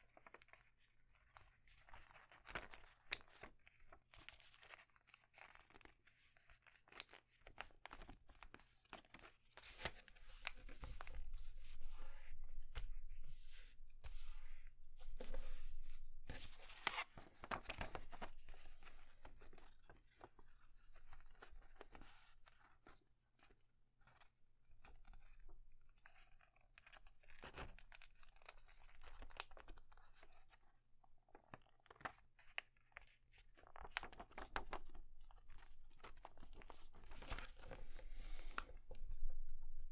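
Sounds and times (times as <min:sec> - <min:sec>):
paper rustling and crackling: 0:00.0 - 0:23.5, 0:31.4 - 0:39.1.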